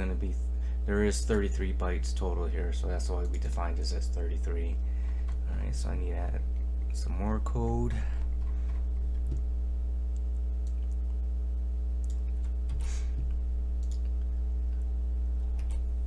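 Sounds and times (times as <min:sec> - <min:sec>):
low electrical hum: 0:00.0 - 0:16.0
computer mouse clicks: 0:13.8 - 0:14.1.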